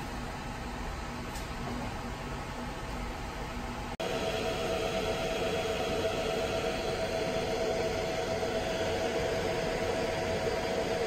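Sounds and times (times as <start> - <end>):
cooling fans whirring: 0.0 - 11.0
steady humming tone: 0.0 - 11.0.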